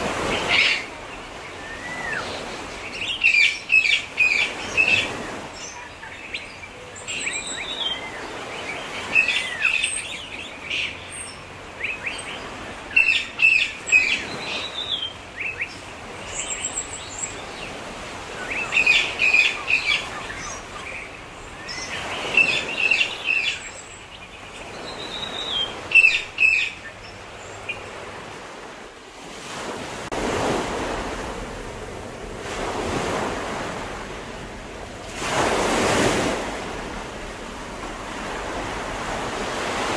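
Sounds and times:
ocean waves washing: 0.0 - 39.9
small birds chirping: 0.3 - 28.3.

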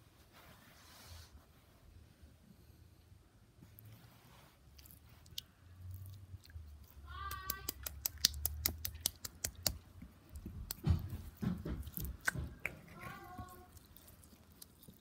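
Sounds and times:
wet slime squelches: 3.6 - 15.0
slime clicking and popping: 7.2 - 11.0.

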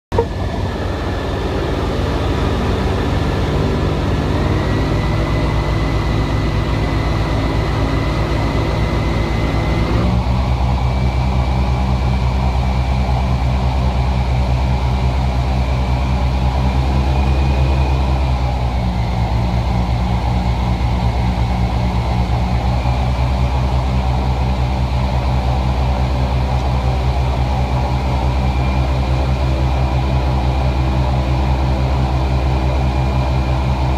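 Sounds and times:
boat motor running: 0.0 - 10.5.

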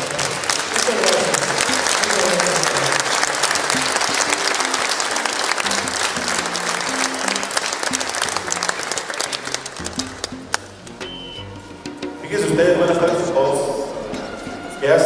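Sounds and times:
audience applauding: 0.0 - 11.4
music with moving bass line: 9.8 - 12.2.

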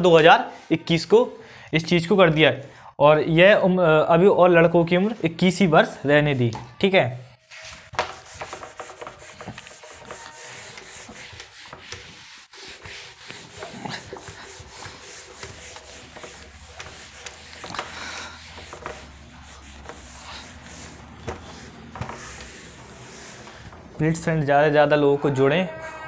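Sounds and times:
rubbing and scraping noise: 7.3 - 26.0.

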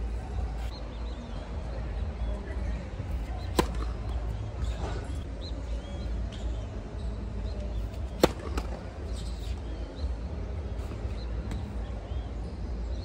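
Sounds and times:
racket hitting tennis ball: 3.2 - 5.2, 7.9 - 9.6.

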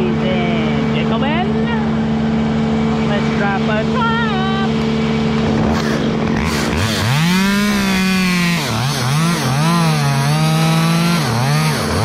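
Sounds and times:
chainsaw cutting wood: 4.9 - 12.0.

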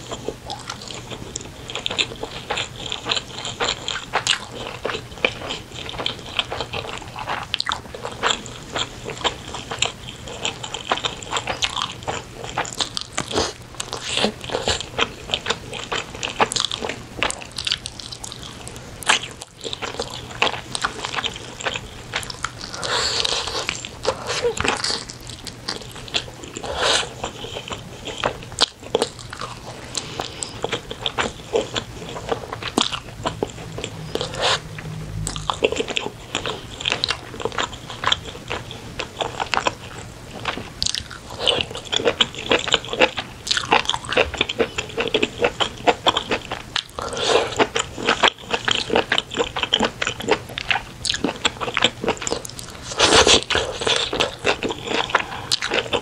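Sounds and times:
person chewing wetly: 0.0 - 56.0.

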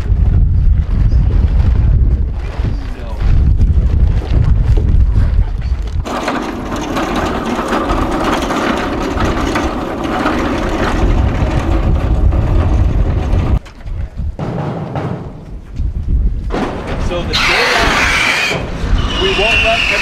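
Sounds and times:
metal cart rolling on asphalt: 5.9 - 15.1.

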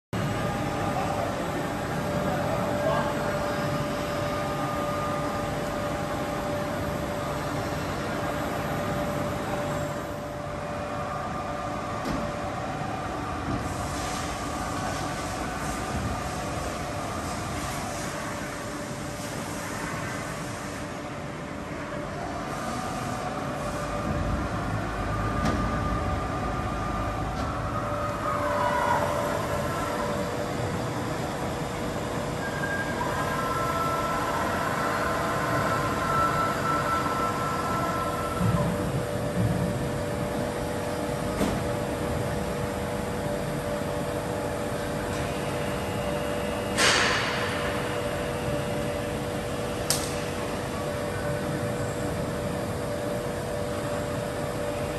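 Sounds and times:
boring machine humming and whining: 0.2 - 54.9
deep machine rumble: 23.3 - 54.9.

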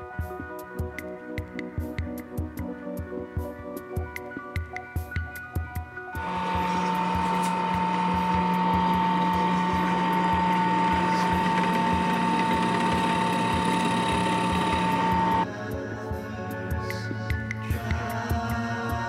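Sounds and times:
drill press motor whine: 6.2 - 15.5.

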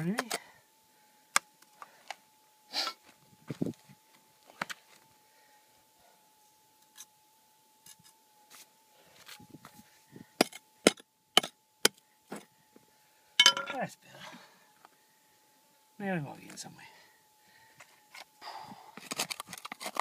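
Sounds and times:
faint steady hum: 0.0 - 20.0
pick striking rock and gravel: 10.4 - 12.5.

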